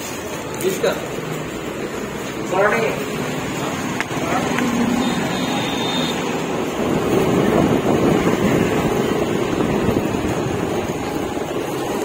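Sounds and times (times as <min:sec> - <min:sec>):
road noise: 0:00.0 - 0:12.0
wind rushing over microphone: 0:06.3 - 0:12.0.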